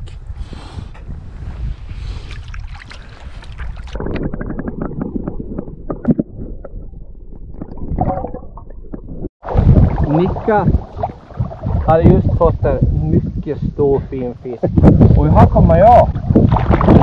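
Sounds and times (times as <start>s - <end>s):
wind on microphone: 0.0s - 17.0s
water moving in shallows: 1.2s - 13.4s, 14.8s - 17.0s
muffled underwater knocks and gurgles: 4.0s - 13.0s.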